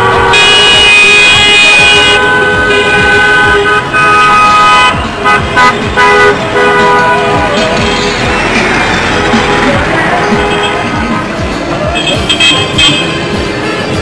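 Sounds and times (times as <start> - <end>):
car horns honking: 0.0 - 11.2, 11.8 - 14.0.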